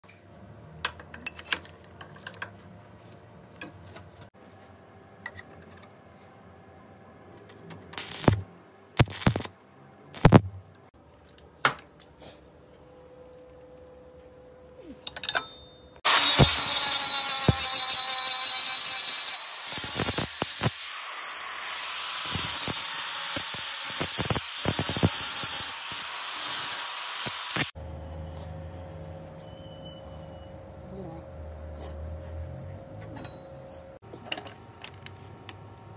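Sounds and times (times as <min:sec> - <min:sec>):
angle grinder cutting metal: 0:08.0 - 0:08.4, 0:09.0 - 0:09.5, 0:10.2 - 0:10.4, 0:16.0 - 0:27.8
welding arc crackle: 0:08.0 - 0:09.6, 0:10.2 - 0:10.4, 0:16.1 - 0:27.8.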